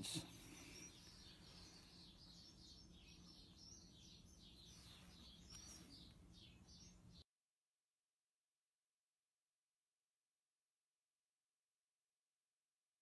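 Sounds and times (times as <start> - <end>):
small bird chirping: 0.0 - 7.2.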